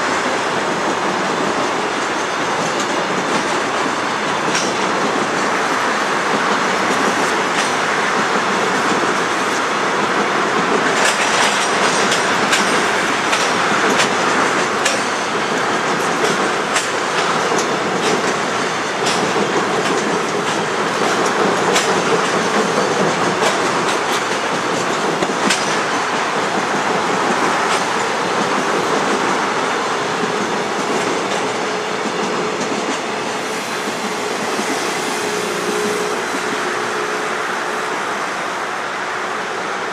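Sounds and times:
train wagons rumbling over bridge: 0.0s - 39.9s
wheels clicking over rail joints: 6.2s - 33.1s.

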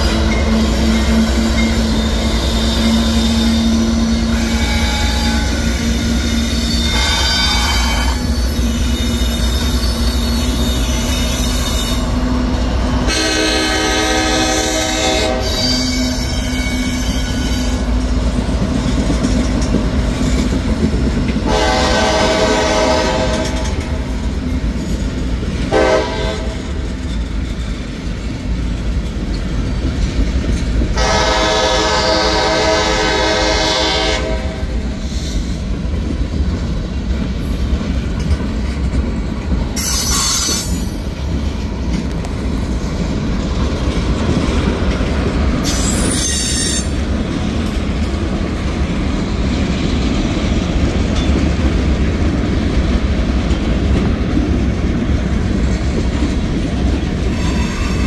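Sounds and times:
train air horn blasts: 0.0s - 12.2s, 13.0s - 17.9s, 21.4s - 24.1s, 25.7s - 26.8s, 31.0s - 35.5s, 39.8s - 40.9s, 45.6s - 47.0s, 57.3s - 58.0s
freight train rumbling past: 0.0s - 58.0s.

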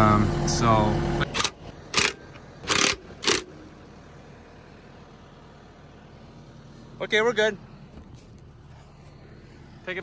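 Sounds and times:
impact driver hammering bolts: 1.3s - 3.6s.

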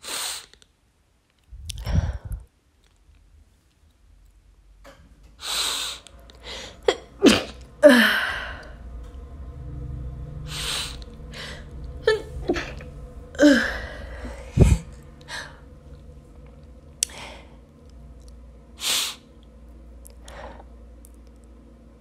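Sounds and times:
voiced catch of breath: 5.4s - 6.9s, 10.5s - 11.9s, 12.5s - 15.7s.

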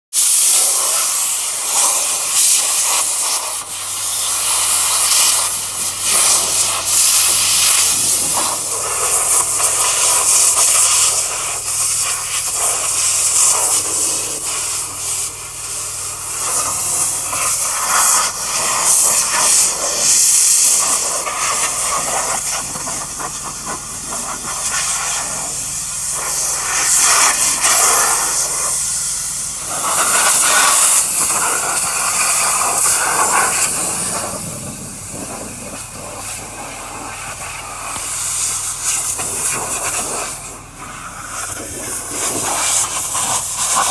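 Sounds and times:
compressed air hissing: 0.2s - 43.9s.

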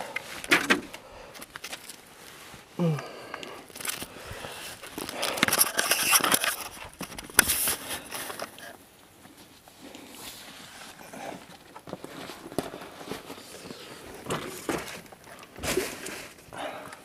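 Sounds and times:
rustling: 3.5s - 16.8s.

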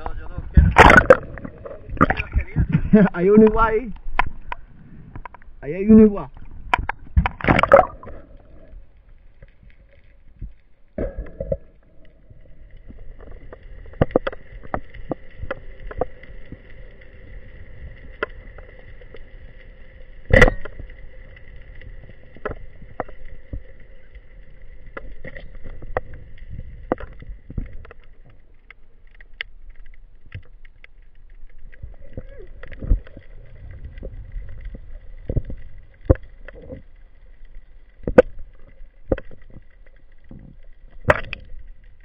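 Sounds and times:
underwater hum of held tones: 0.0s - 42.0s
sharp underwater clicks: 0.6s - 2.6s, 3.4s - 5.5s, 6.2s - 8.5s, 24.7s - 42.0s.

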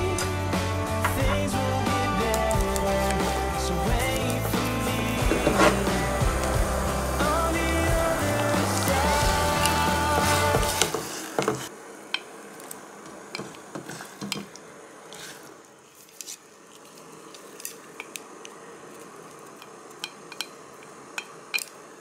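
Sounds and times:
faint steady hiss from pot: 2.1s - 22.0s
chopsticks and spoon tapping pot: 13.3s - 13.6s, 14.2s - 14.6s, 20.0s - 20.6s.

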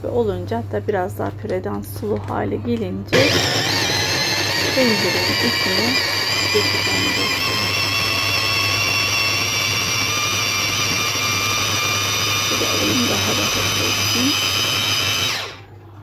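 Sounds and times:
electric chopper motor running: 3.1s - 15.7s.

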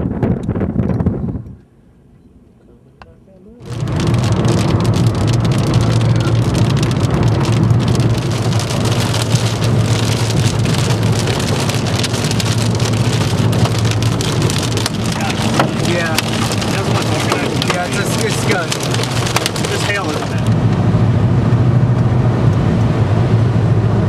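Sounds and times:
heavy rain on car windshield: 3.6s - 20.9s
car driving drone: 3.6s - 24.0s.

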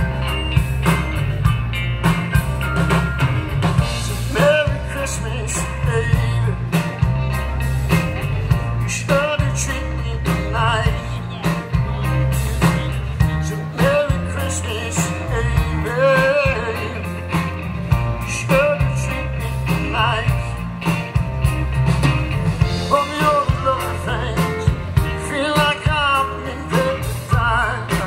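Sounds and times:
rock and roll band playing: 0.0s - 28.0s
person singing with vibrato: 3.8s - 7.3s, 8.5s - 17.5s, 22.7s - 28.0s.

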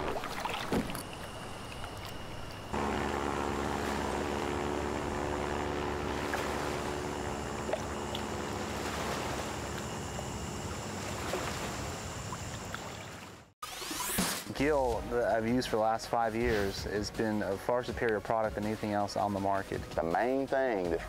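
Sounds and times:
propeller plane engine drone: 0.0s - 13.4s.

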